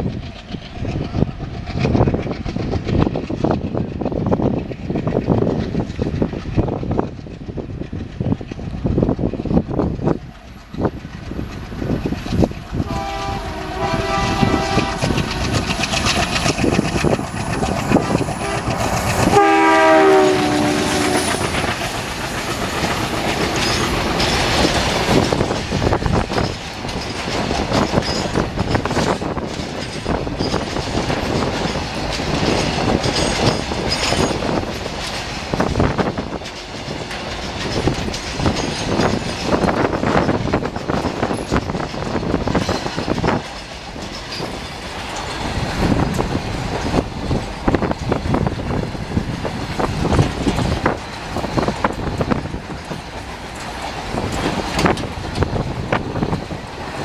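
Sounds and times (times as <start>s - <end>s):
train wheels clickety-clack: 0.0s - 57.0s
locomotive horn: 12.8s - 15.2s, 18.4s - 21.4s.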